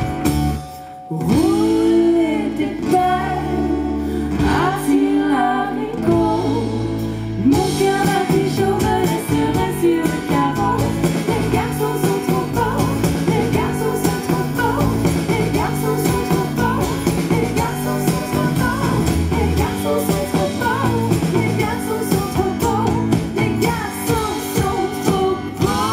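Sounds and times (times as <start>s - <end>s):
electric bass: 0.0s - 25.9s
electric guitar: 0.0s - 25.9s
women singing: 1.1s - 25.9s.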